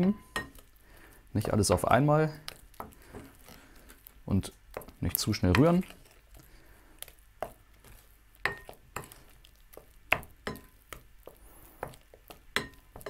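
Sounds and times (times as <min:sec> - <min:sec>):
spatula clinking glass bowl: 0:00.0 - 0:00.7, 0:08.4 - 0:09.2, 0:10.2 - 0:10.8, 0:11.8 - 0:13.0.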